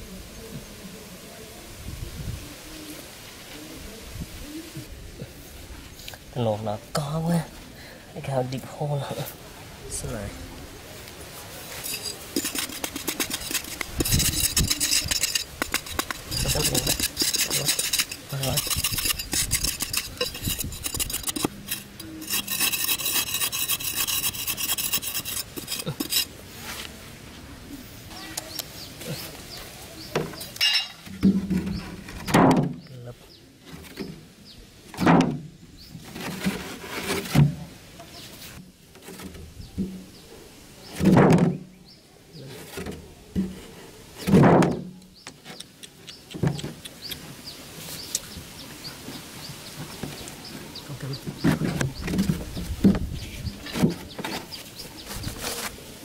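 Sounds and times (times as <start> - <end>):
knocks and rustles: 11.8 - 22.8, 30.1 - 32.9, 34.9 - 37.7, 40.9 - 41.6, 42.5 - 45.6, 51.2 - 55.8
small birds chirping: 11.8 - 26.2, 28.1 - 30.9, 45.0 - 55.8
knife digging into sandy soil: 11.8 - 26.3.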